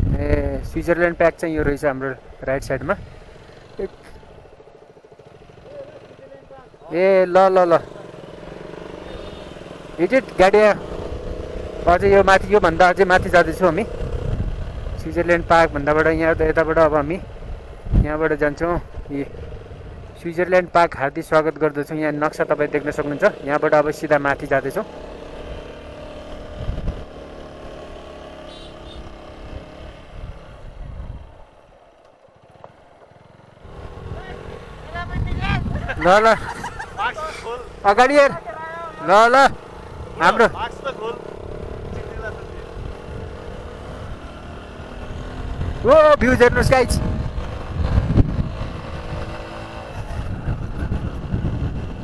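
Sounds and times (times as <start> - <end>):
wind rumble on microphone: 0.0 - 0.8, 13.2 - 16.6, 17.2 - 20.2, 26.4 - 27.1, 30.0 - 31.4, 34.9 - 36.7, 45.1 - 52.0
motorcycle engine running: 0.0 - 52.0.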